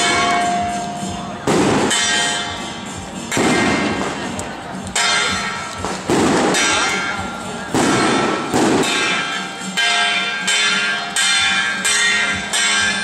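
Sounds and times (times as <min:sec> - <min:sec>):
hand-held flat gongs ringing: 0:00.0 - 0:01.3, 0:04.8 - 0:05.8, 0:08.8 - 0:13.0
rattling gong crash: 0:00.0 - 0:04.4, 0:05.0 - 0:13.0.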